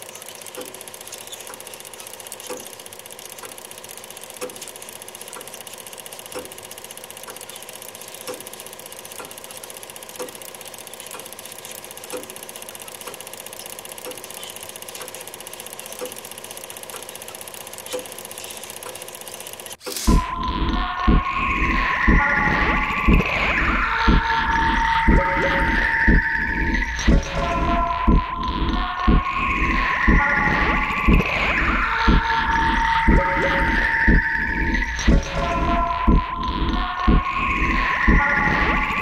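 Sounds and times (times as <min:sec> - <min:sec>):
sharp projector click: 0:00.0 - 0:20.2
film projector whirring and clattering: 0:00.0 - 0:39.0.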